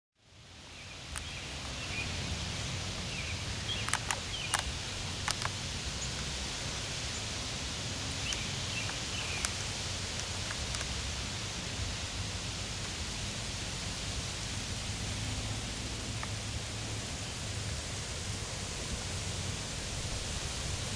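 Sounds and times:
steady hiss: 0.2s - 20.9s
sharp clicks: 3.7s - 6.3s, 8.1s - 11.0s.

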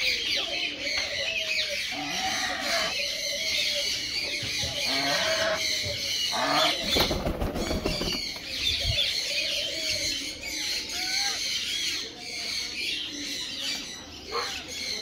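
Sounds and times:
wings flapping: 6.8s - 8.5s.

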